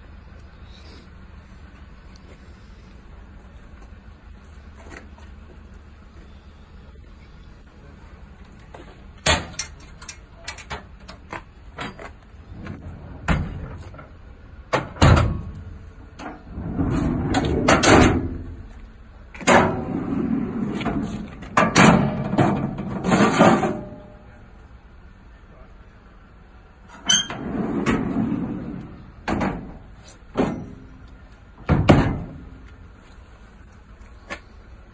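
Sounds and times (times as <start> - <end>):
metal drawers sliding open: 9.2 - 18.6, 19.4 - 24.1, 26.9 - 31.0
rattling sliding metal: 16.2 - 18.6, 19.4 - 24.2, 26.9 - 31.2
metal clunks: 20.8 - 24.3, 29.2 - 32.6.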